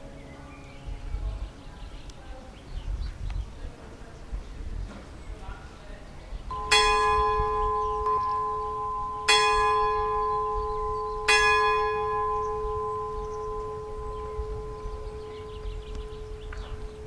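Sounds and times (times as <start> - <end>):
clock-tower bell striking: 6.5 - 17.0.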